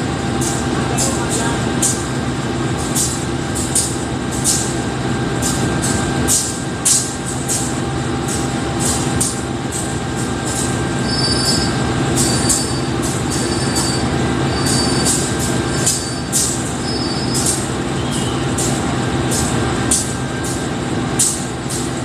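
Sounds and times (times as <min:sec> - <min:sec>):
locomotive engine idling: 0:00.0 - 0:22.0.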